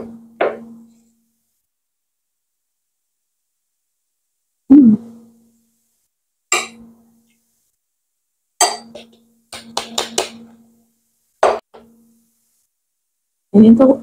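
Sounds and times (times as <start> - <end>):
metal spoon clinking on ceramic bowl: 6.5 - 6.8, 8.6 - 9.7.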